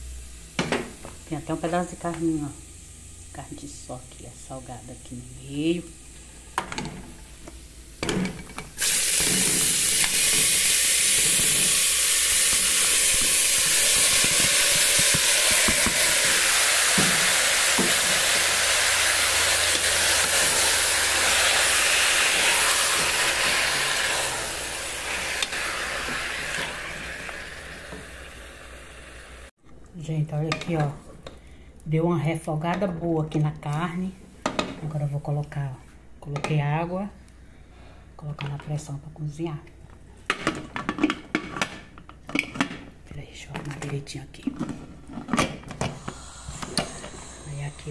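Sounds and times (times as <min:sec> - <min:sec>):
meat sizzling in hot oil: 0:04.5 - 0:29.5.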